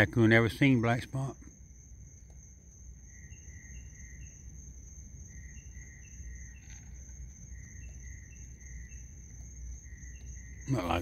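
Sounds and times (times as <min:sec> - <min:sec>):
high-pitched cricket trill: 0:00.0 - 0:11.0
insect chirping in short runs: 0:00.0 - 0:11.0.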